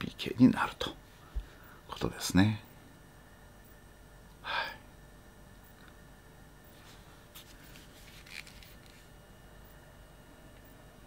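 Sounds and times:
soft rustle: 6.7s - 9.1s.

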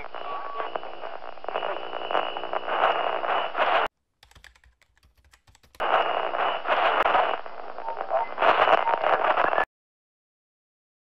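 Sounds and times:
keyboard typing clatter: 4.2s - 5.8s.

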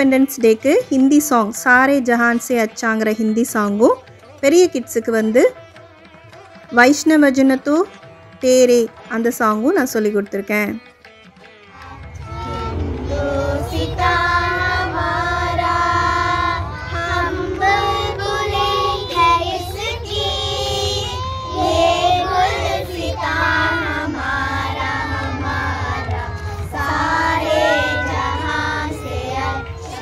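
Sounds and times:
children singing in unison: 11.7s - 30.0s.

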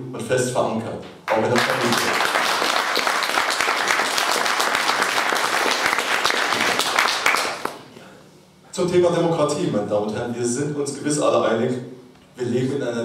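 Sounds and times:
audience applauding: 1.3s - 7.9s.

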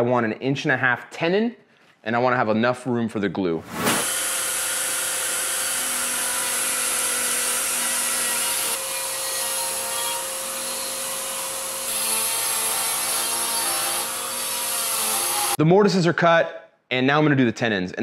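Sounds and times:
router whining while cutting wood: 4.0s - 15.6s.

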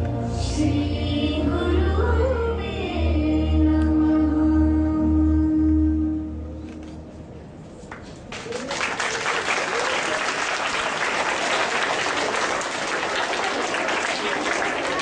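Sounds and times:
music: 0.0s - 7.2s
audience applause: 8.3s - 15.0s.

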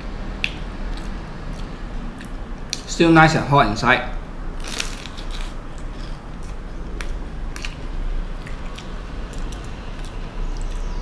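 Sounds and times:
crunchy chewing: 4.6s - 11.0s.

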